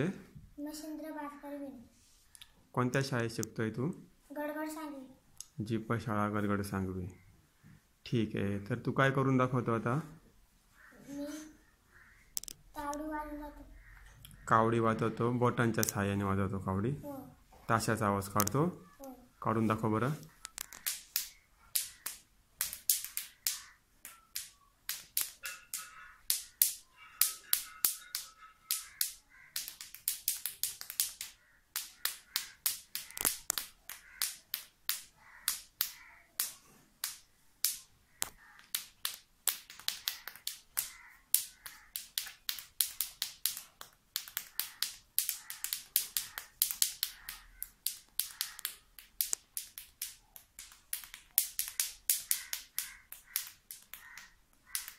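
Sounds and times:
rhythmic finger snapping: 20.2s - 54.9s.

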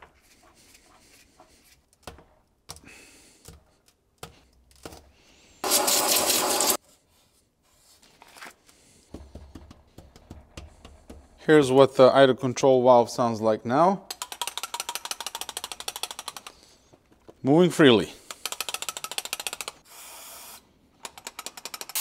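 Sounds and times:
loud hiss: 5.6s - 6.8s.

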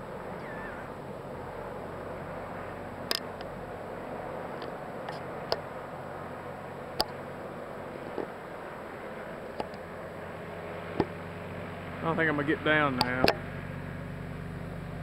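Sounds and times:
rushing background noise: 0.0s - 15.0s
warbling chirp: 0.3s - 1.0s.

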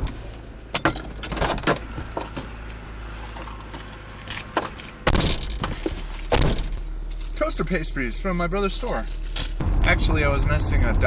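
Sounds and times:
low steady hum: 0.0s - 11.0s
foil packet rustling and crinkling: 5.6s - 9.6s.

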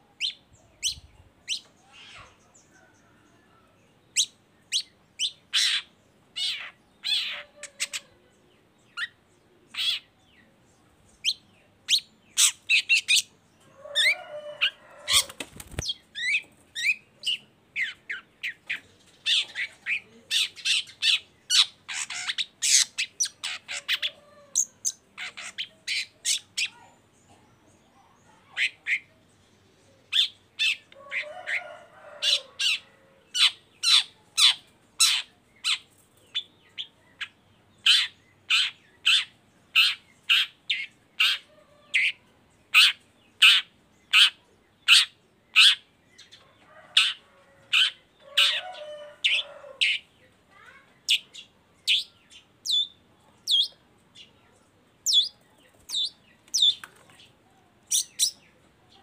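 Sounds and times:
bird harsh chattering: 19.2s - 26.8s.

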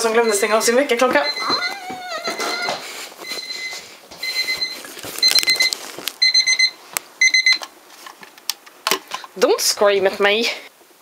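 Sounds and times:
alarm clock beeping: 0.0s - 7.6s.

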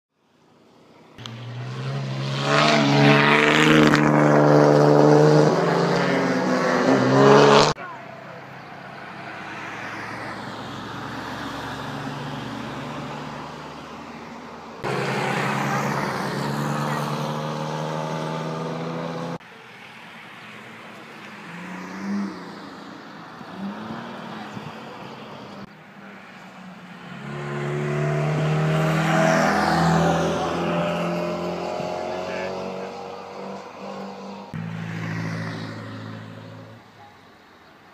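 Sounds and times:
cars driving past: 0.6s - 37.5s.

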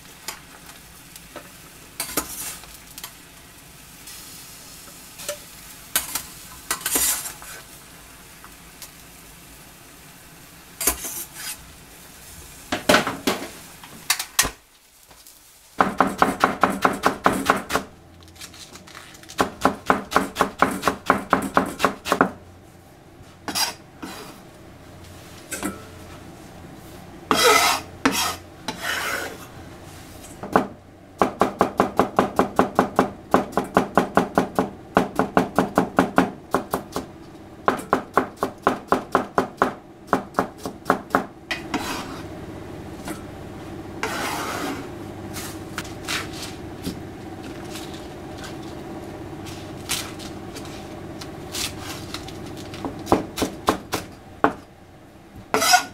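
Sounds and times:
rustling of vegetables: 0.0s - 9.6s, 10.9s - 16.1s, 17.6s - 19.8s, 44.0s - 53.6s
lettuce leaves rustling: 18.2s - 19.6s, 45.3s - 53.1s.

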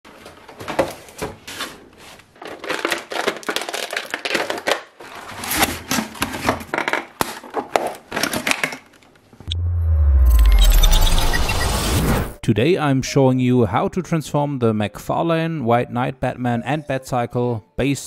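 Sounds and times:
plastic packaging crinkling: 2.1s - 6.1s.

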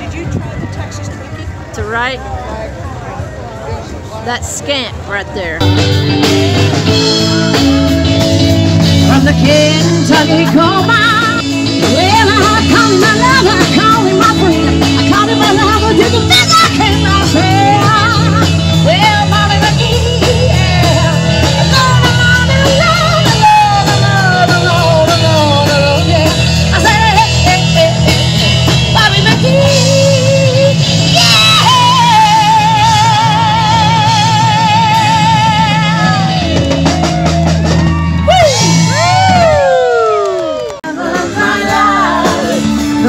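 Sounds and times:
bass guitar: 0.0s - 43.0s
drums: 0.0s - 43.0s
electric guitar lead with vibrato: 4.7s - 43.0s.

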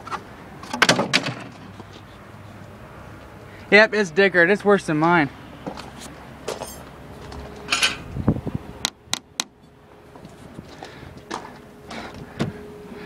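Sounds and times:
rustling and bumps in car: 10.2s - 12.6s.

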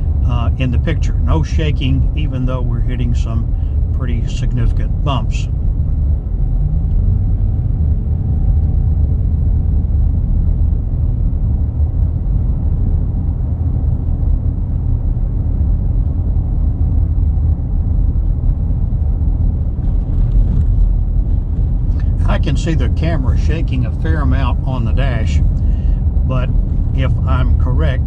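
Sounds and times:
truck tyres and engine rumble: 0.0s - 28.0s.

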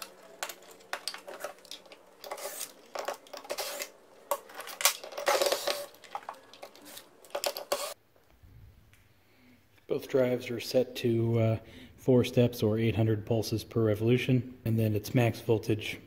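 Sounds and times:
clicks and rattles of small parts: 0.0s - 8.0s.

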